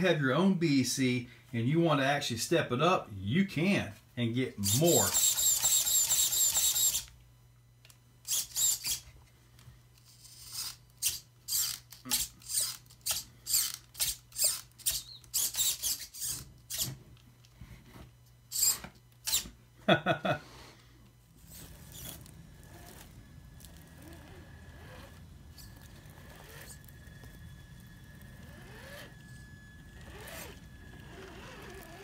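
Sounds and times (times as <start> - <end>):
faint steady hum: 0.0 - 32.0
servo motor whirring: 4.6 - 7.1, 8.2 - 9.1, 10.0 - 17.0, 18.5 - 19.5, 21.4 - 32.0
low-pitched buzz: 21.2 - 32.0.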